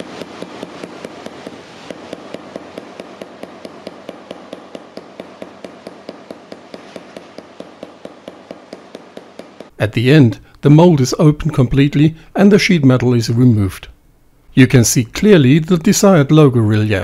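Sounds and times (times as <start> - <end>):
hammer tapping rapidly: 0.0 - 9.8.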